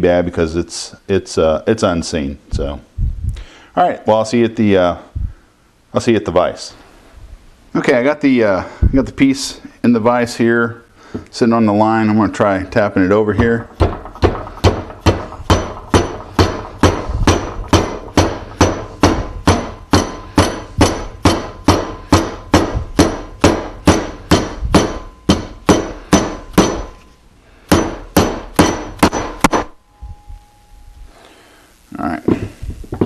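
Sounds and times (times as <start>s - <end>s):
mallet tapping metal bracket: 13.2s - 27.1s, 27.7s - 29.8s.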